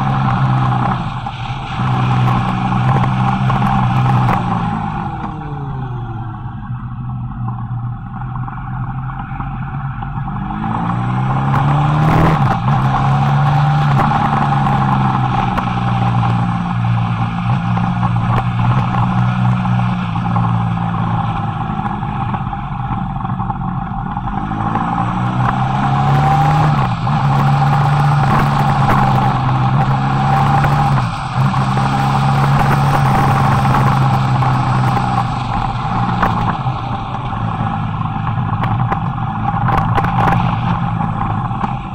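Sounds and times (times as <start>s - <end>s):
motorcycle engine accelerating: 0.0s - 41.9s.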